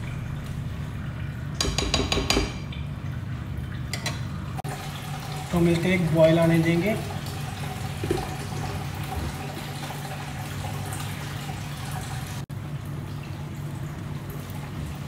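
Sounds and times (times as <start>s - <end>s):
glass lid knocking on pan: 1.6s - 2.6s.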